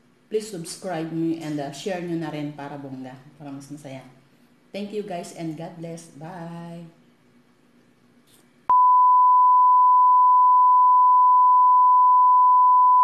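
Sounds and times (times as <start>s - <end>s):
pure test tone: 8.7s - 13.0s.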